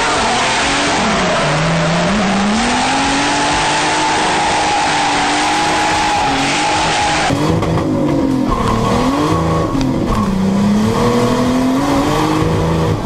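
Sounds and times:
tyres squealing: 0.0s - 7.4s
car engine at high revs: 0.0s - 13.0s.

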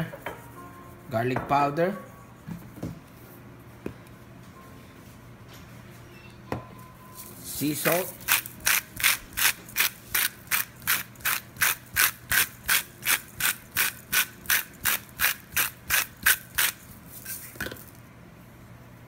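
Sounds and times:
salt grinder grinding: 7.5s - 17.9s.

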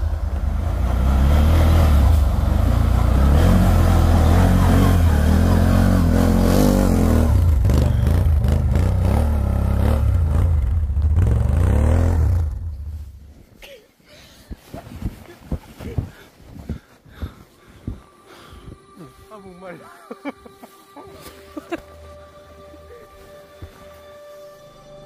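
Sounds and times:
atv engine revving: 0.0s - 13.2s.

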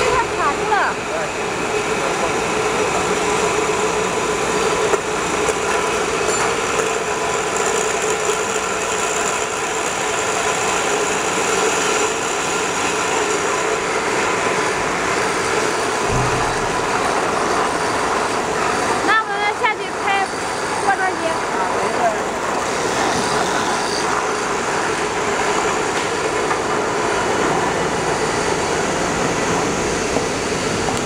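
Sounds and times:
conveyor machinery running: 0.0s - 31.0s
low thump: 16.0s - 17.8s.

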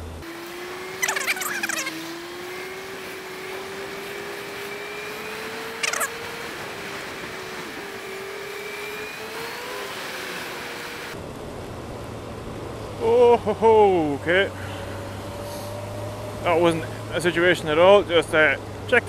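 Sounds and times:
brief high-pitched squeal: 1.0s - 1.9s
wind and wet road hiss: 14.4s - 17.1s.

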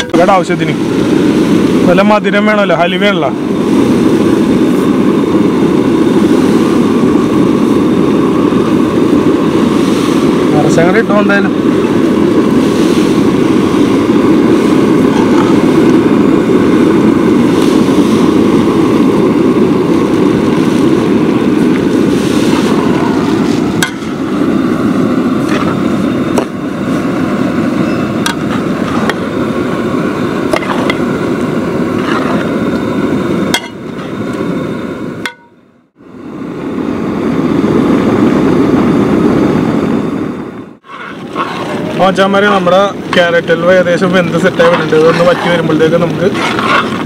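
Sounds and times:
loud rushing roar: 0.0s - 47.0s
metal ladle scraping in a pot: 40.8s - 41.9s, 44.7s - 47.0s.

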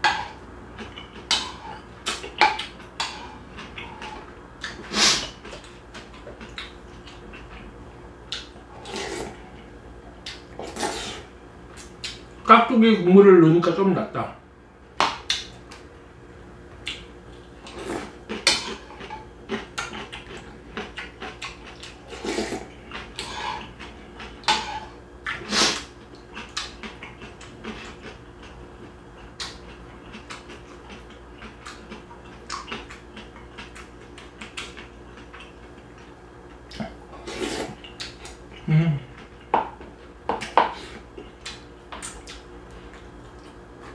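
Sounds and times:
faint steady hum: 0.0s - 43.9s
slurping soup: 8.7s - 9.5s, 10.6s - 11.3s, 22.0s - 23.8s, 37.2s - 37.8s.

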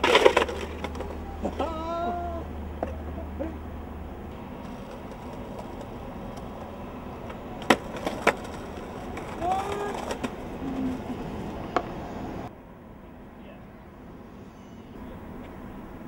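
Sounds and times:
skateboard pop: 0.0s - 1.6s, 4.6s - 11.1s
skateboard clattering: 0.0s - 1.7s, 4.3s - 12.0s
skateboard grinding on ledge: 0.0s - 1.8s, 4.3s - 12.0s
skateboard wheels rolling on concrete: 0.0s - 16.0s.

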